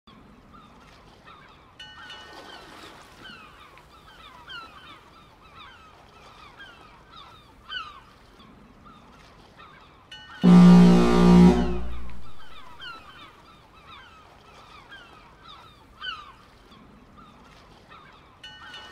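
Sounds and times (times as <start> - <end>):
loud deep steady tone: 10.4 - 12.8.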